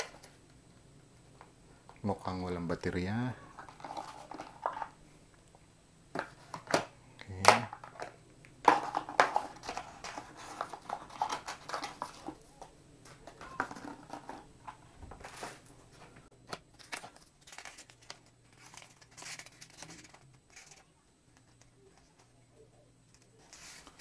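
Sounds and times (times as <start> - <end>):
paper and cardboard rustling: 8.7 - 12.4, 13.1 - 22.3, 23.1 - 24.0.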